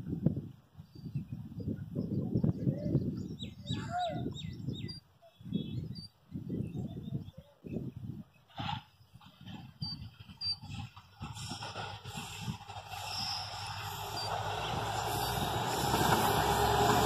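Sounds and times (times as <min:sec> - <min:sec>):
low rumbling wind gusts: 0:00.0 - 0:17.0
birds chirping: 0:00.8 - 0:11.0, 0:13.0 - 0:15.8.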